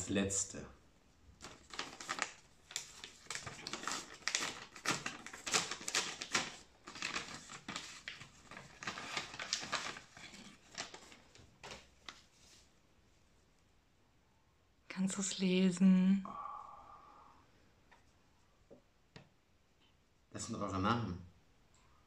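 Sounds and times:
paper rustling and crinkling: 1.4 - 12.7.

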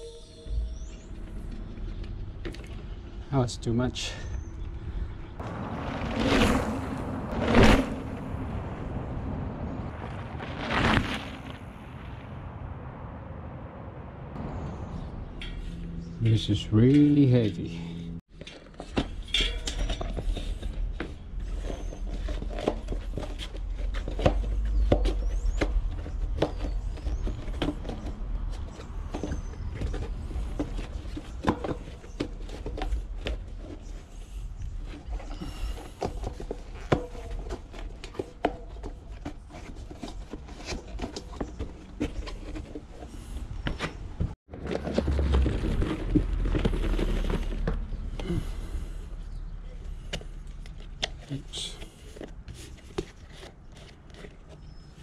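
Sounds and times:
rubbing and rumble: 4.3 - 12.8, 14.3 - 55.0
tyre handling clicks and knocks: 18.3 - 34.0, 34.9 - 48.5.

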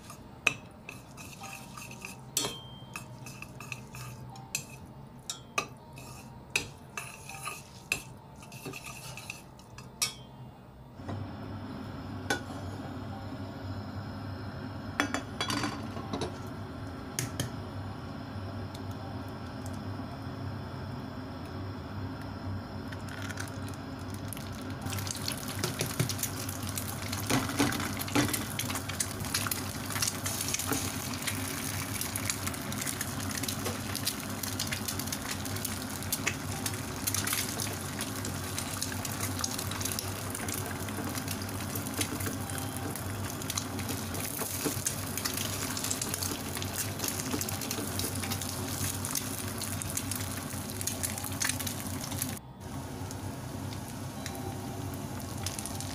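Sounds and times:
eggs sizzling in hot oil: 0.0 - 4.8, 5.6 - 9.8, 22.7 - 55.9.

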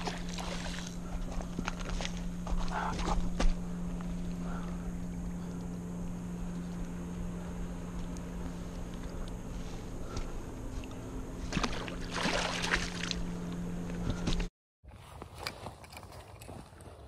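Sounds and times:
fish thrashing and splashing in water: 0.0 - 1.0, 11.5 - 13.2
steady low hum: 0.0 - 14.5.

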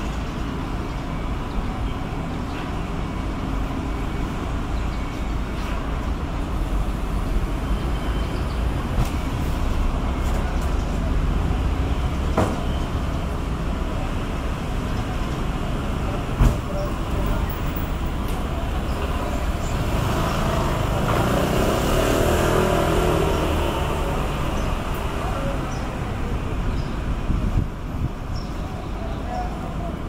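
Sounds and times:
street traffic rumbling: 0.0 - 30.0
motor vehicle passing: 18.8 - 26.6.

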